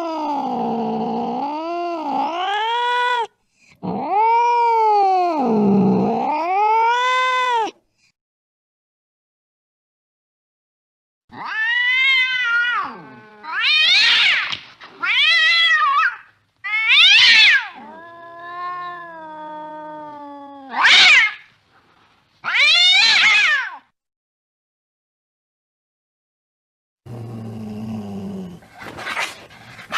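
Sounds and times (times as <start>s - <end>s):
cat moaning: 0.0s - 7.8s, 11.3s - 14.4s, 15.0s - 21.5s, 27.1s - 29.9s
cat yowling: 0.0s - 7.8s, 11.3s - 21.5s, 22.4s - 23.9s.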